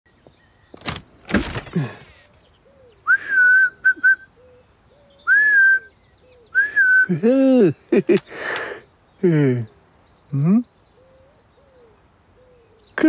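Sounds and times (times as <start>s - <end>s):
door clicking open: 0.7s - 2.3s
man whistling: 3.1s - 4.3s, 5.3s - 5.9s, 6.5s - 7.2s.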